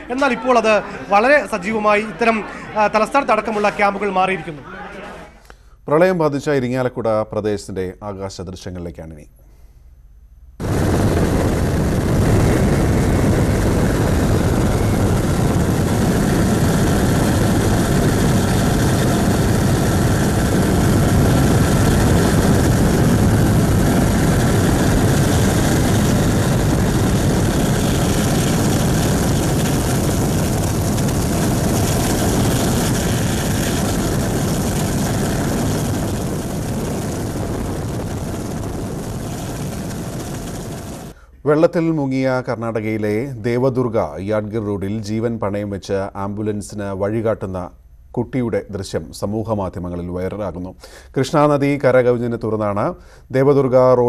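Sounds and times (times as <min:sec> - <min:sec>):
aircraft engine and airflow: 0:10.6 - 0:41.2.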